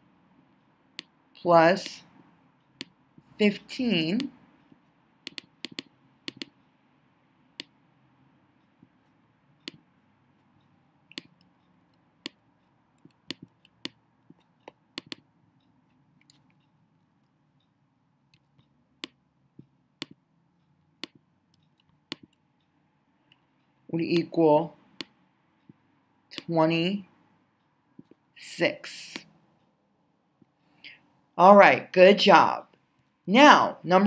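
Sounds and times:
computer mouse clicks: 4.2 - 6.6, 11.1 - 17.7, 18.3 - 20.2, 21.0 - 22.5.

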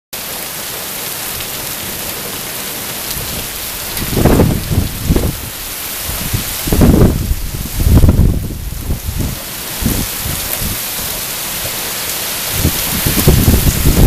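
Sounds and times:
heavy rain pouring: 0.2 - 14.0
wind gusts buffeting microphone: 3.0 - 14.0.

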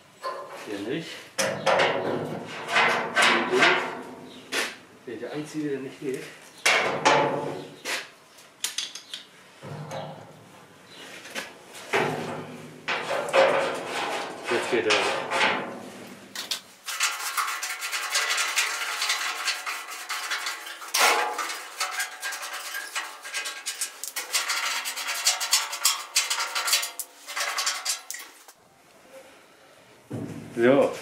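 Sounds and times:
metallic clinking and scraping: 8.6 - 28.5.

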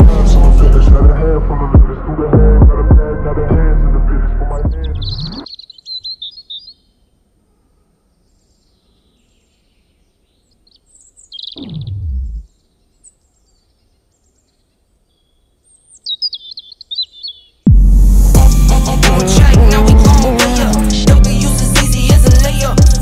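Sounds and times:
music: 0.0 - 5.4, 17.7 - 23.0
small birds chirping: 4.7 - 17.7.

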